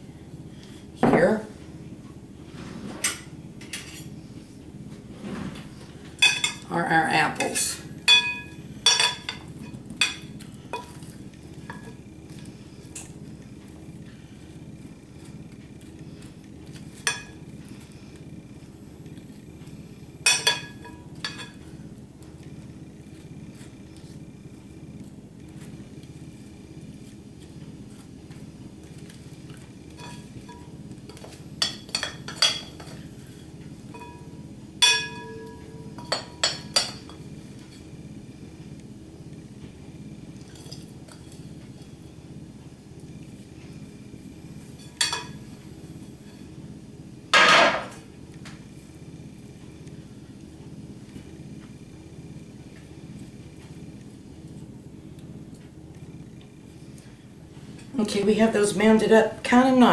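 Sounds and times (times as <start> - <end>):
metal spoon clinking on dish: 8.1 - 10.2, 31.2 - 33.0, 34.0 - 37.2
metal spoon clinking on glass bowl: 34.0 - 37.1.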